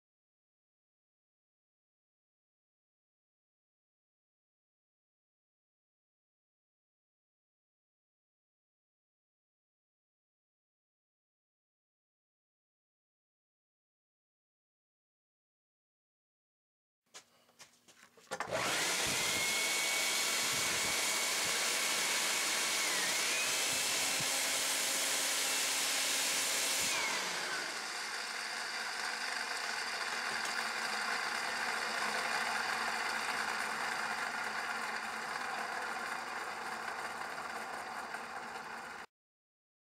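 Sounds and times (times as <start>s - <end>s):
jet engine fan rushing and whining: 18.4s - 28.1s.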